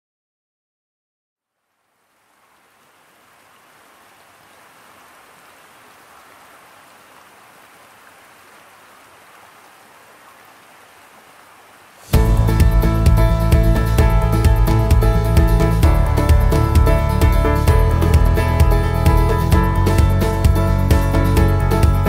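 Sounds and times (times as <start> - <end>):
river water rushing: 2.0 - 12.5.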